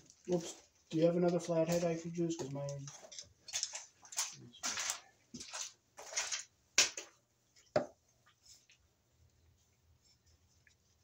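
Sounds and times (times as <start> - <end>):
hand tools rustling: 0.0 - 6.5.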